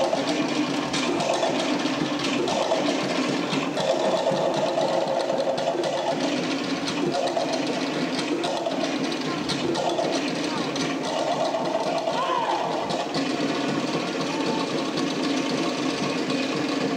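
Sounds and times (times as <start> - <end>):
pitched drum tones: 0.0 - 15.7.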